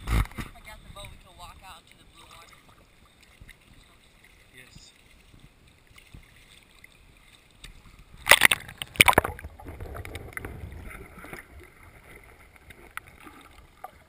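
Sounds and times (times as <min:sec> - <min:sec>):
muffled underwater rumble: 0:07.7 - 0:14.0
camera splashing into water: 0:08.2 - 0:13.6.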